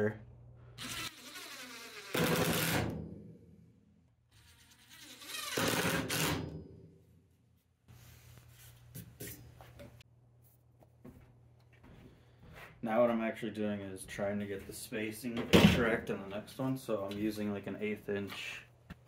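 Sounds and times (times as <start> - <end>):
impact driver hammering screws: 5.1 - 6.5.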